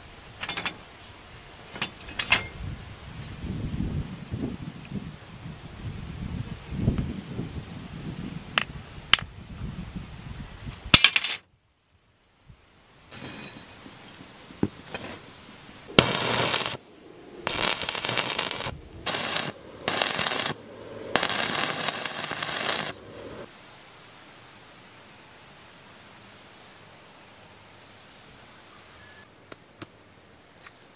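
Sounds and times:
welding arc crackling and sizzling: 15.9 - 16.8, 17.4 - 23.5.

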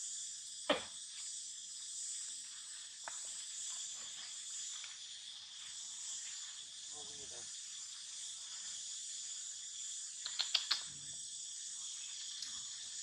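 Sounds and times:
high-pitched insect chorus: 0.0 - 13.0
faint clicks: 10.2 - 11.0, 12.2 - 12.6.

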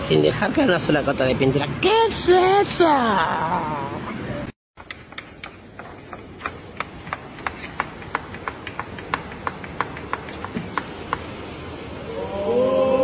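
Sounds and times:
steady low hiss: 3.9 - 13.0.

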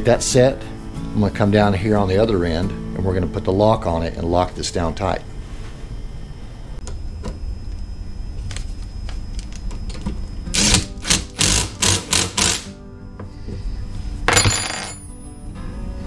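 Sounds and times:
impact driver bursts: 10.6 - 12.7.

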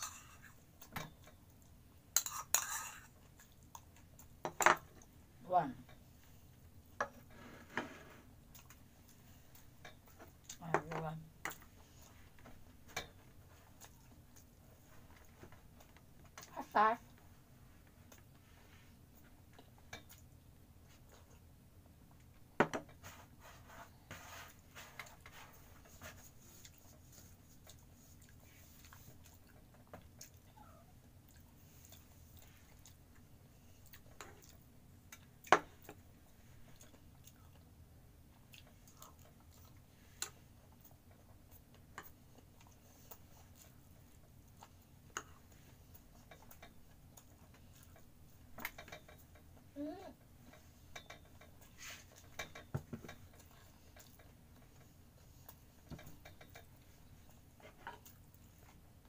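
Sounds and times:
quiet chewing: 2.9 - 5.1, 8.5 - 10.7, 11.5 - 17.2, 24.8 - 59.0.

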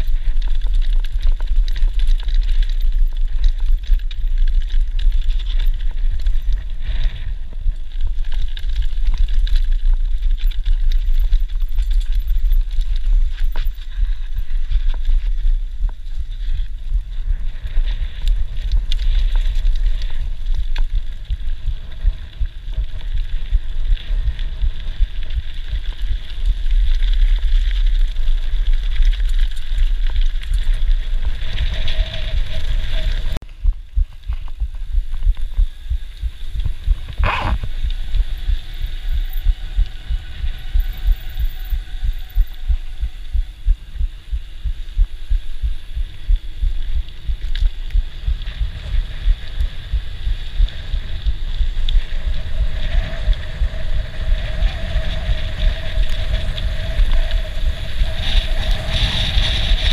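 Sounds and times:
bike rattling and bumping: 0.0 - 43.5
wind buffeting microphone: 0.0 - 59.9.

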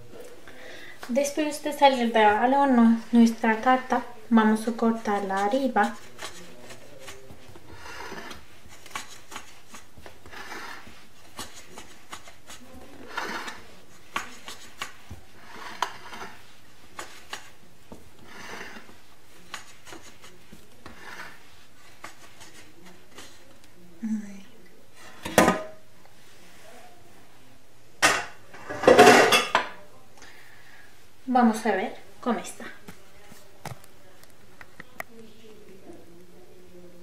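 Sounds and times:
metal pan scraping on counter: 7.7 - 9.2, 10.2 - 11.5, 13.0 - 16.6, 18.2 - 19.0, 20.8 - 21.5, 28.1 - 29.6.

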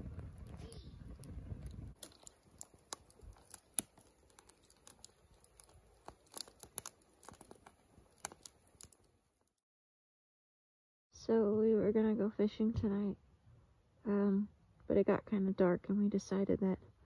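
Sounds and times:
campfire crackling: 0.0 - 9.5
sharp snaps from burning logs: 0.1 - 9.1.

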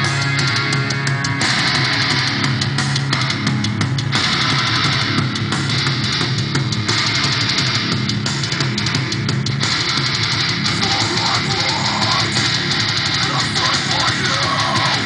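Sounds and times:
heavy rock music: 0.0 - 15.0.

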